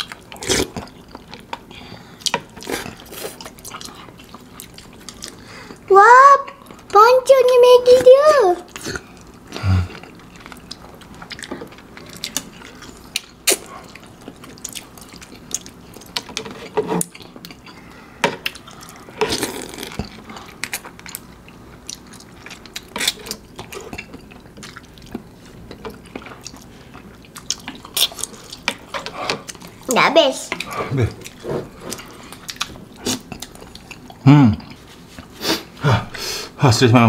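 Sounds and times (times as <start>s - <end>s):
wet chewing: 0.0s - 5.8s, 8.6s - 29.9s, 30.5s - 35.3s
slurping noodles: 19.2s - 20.1s.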